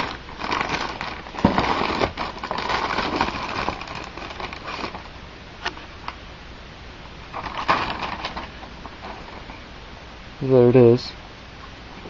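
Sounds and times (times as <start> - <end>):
packaging rustling and crinkling: 0.0 - 5.8, 7.3 - 9.6.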